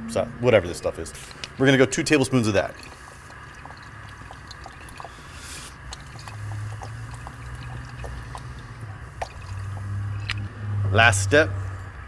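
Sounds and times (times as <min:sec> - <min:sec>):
sauce trickling into saucepan: 0:01.1 - 0:10.5
faint ticks and drips: 0:01.2 - 0:10.5
low hum: 0:02.6 - 0:12.0.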